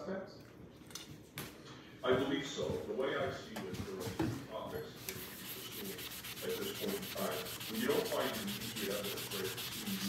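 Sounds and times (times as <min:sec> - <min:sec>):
sponge scrubbing metal: 0:05.0 - 0:10.0.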